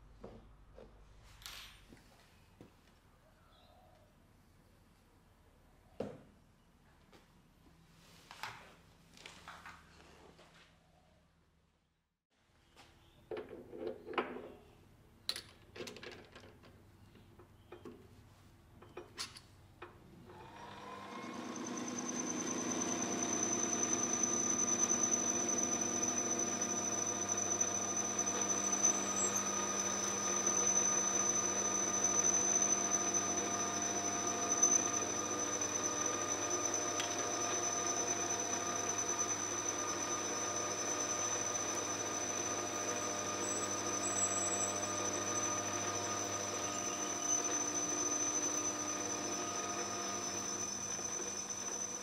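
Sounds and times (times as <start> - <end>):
metal lathe whining: 20.3 - 52.0.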